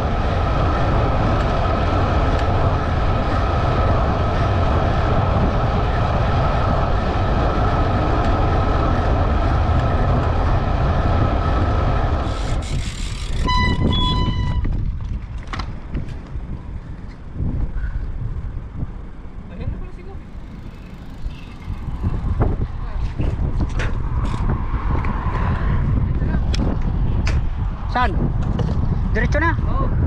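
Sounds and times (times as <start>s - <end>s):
thin whine: 0.0s - 14.8s
wind rushing over microphone: 0.0s - 30.0s
electronic beeps: 13.5s - 14.7s.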